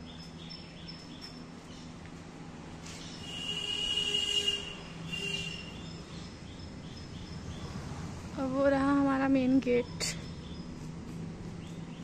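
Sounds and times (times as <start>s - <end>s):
outdoor background noise: 0.0s - 12.0s.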